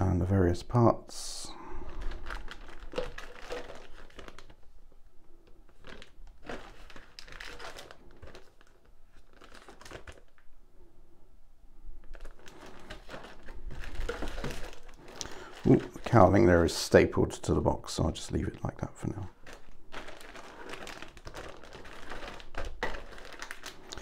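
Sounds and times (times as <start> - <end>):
plastic bags crinkling: 1.8 - 10.6, 12.0 - 17.0, 19.3 - 24.0.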